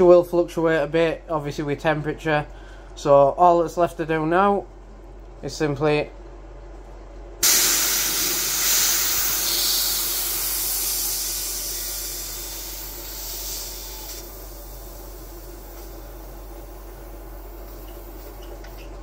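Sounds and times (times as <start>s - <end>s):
compressed air hissing: 7.4s - 18.4s.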